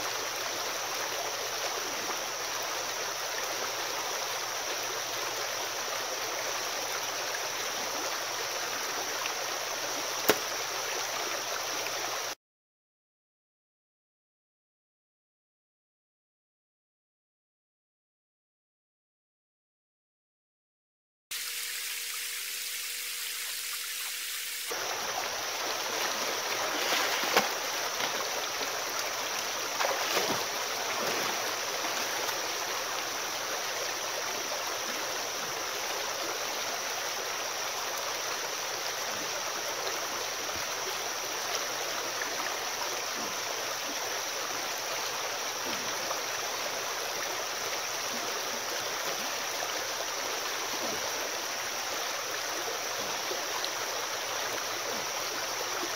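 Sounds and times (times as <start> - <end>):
creek water babbling over rocks: 0.0 - 12.4, 23.7 - 55.9
sharp splashes or knocks: 10.2 - 10.6, 25.8 - 28.7, 29.7 - 32.4.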